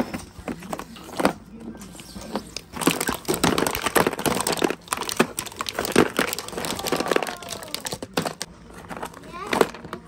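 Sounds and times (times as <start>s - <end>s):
ice cubes cracking and clattering: 2.7s - 10.0s.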